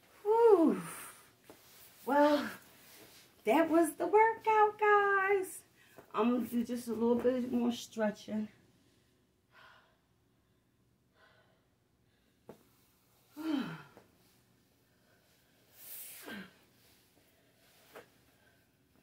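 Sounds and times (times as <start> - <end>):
woman sighing: 0.2 - 1.2, 13.3 - 14.0
woman breathing: 5.7 - 6.1, 8.7 - 19.0
low groan: 13.4 - 14.0.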